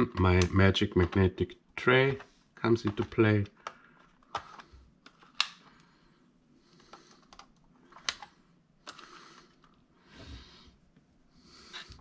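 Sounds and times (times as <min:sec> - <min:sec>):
plastic and metal parts clicking: 0:02.1 - 0:05.8, 0:06.8 - 0:09.8.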